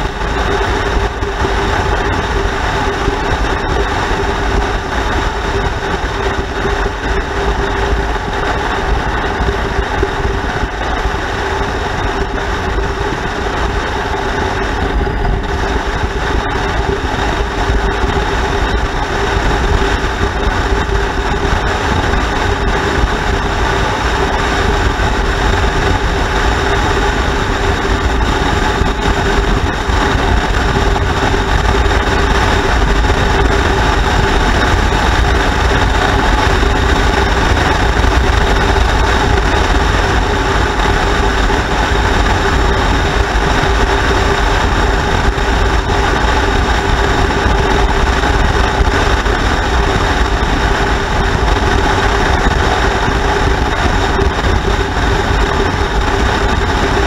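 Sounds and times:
motorcycle engine running: 0.0s - 57.0s
road noise rushing: 0.0s - 57.0s.

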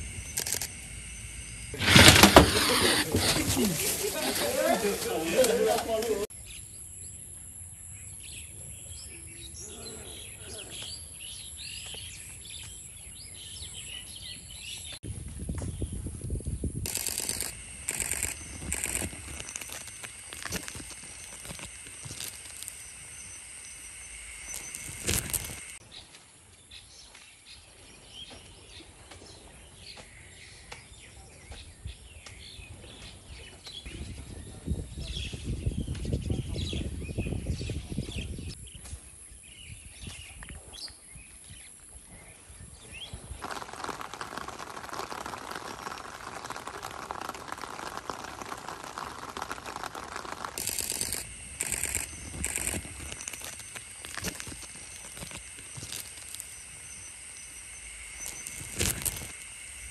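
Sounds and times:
high-pitched insect buzzes: 0.0s - 5.4s, 16.7s - 25.8s, 43.4s - 59.9s.

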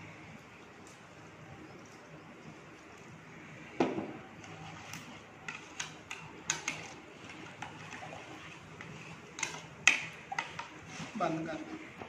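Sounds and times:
metal spoon stirring in bowl: 4.4s - 12.0s.

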